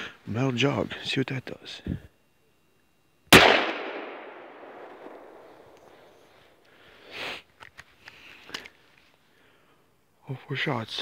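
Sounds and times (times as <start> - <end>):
revolver gunshot: 3.3 - 5.8
gunshot echo: 3.3 - 6.0.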